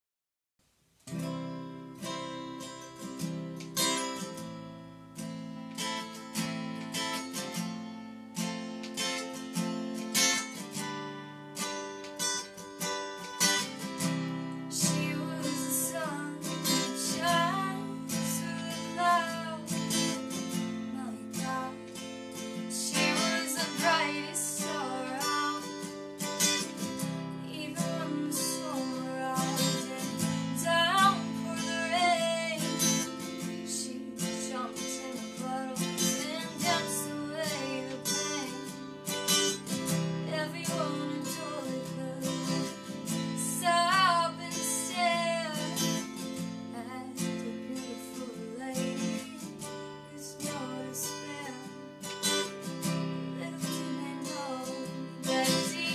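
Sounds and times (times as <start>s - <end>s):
acoustic guitar strumming: 1.0s - 55.9s
young woman singing: 14.6s - 55.9s.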